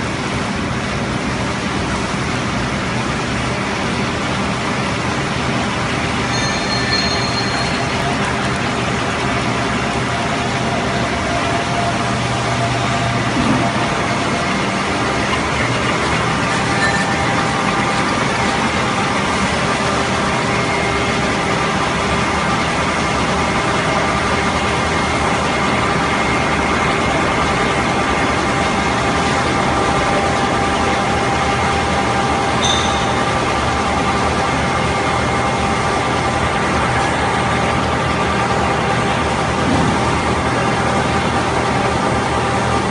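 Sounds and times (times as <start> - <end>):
loud industrial hum: 0.0 - 42.9.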